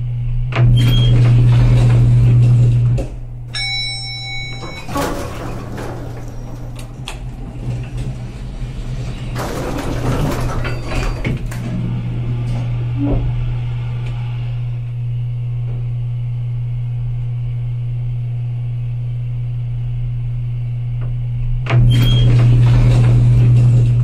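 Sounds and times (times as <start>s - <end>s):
lift low hum: 0.0s - 24.0s
sliding door and mechanism noises: 0.6s - 14.7s, 21.7s - 24.0s
short electronic beep: 3.5s - 5.0s.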